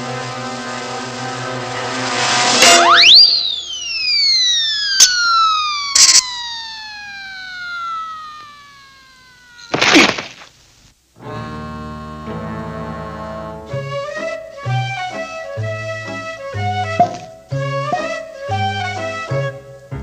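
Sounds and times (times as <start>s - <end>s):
cartoon descending whistle: 2.6s - 9.8s, 13.9s - 19.5s
cartoon rising whistle: 2.6s - 9.8s
sharp clicks: 5.9s - 6.4s
loud crash: 9.6s - 10.5s.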